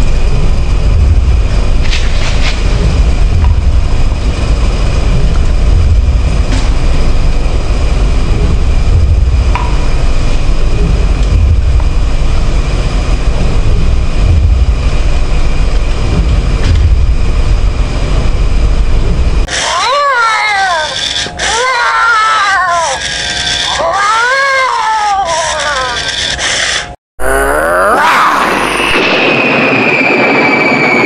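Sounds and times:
fog machine rushing: 0.0 - 24.7, 27.9 - 31.0
faint high whine: 28.2 - 31.0.

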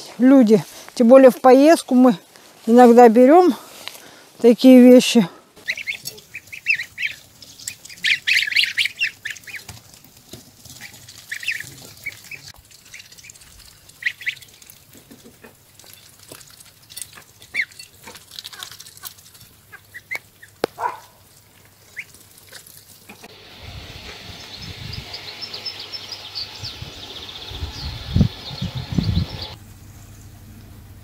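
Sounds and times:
steady outdoor hiss: 0.0 - 31.0
goslings peeping: 5.6 - 10.0, 10.6 - 29.6.

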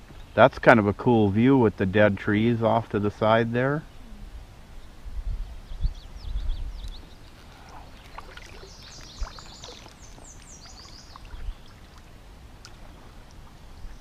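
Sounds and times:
wind buffeting microphone: 4.3 - 14.0
small bird singing: 4.8 - 12.2
paddle dipping and dripping: 6.8 - 14.0.

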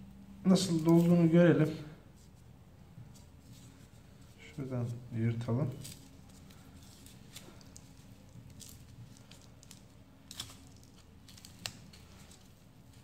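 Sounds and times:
paper tearing and rustling: 5.7 - 13.0
small crackles: 5.7 - 13.0.

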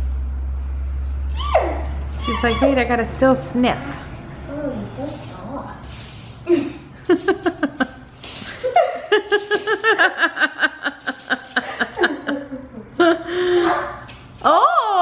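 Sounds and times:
woman laughing: 6.5 - 13.6.

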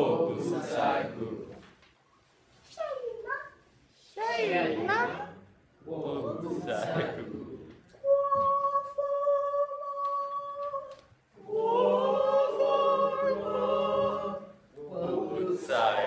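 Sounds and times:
choir singing: 0.0 - 1.7, 6.0 - 16.0.

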